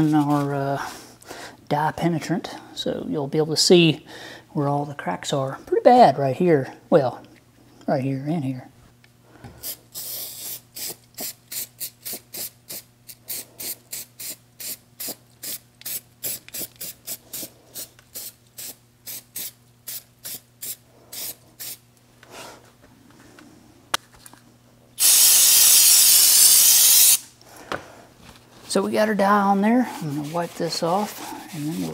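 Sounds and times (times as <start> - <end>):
aerosol can spraying: 9.6 - 21.8, 25.0 - 27.3.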